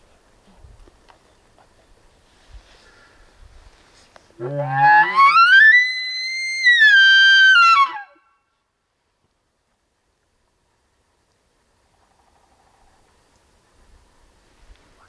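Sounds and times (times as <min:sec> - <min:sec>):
elk call blown through bugle tube: 0:04.4 - 0:08.3.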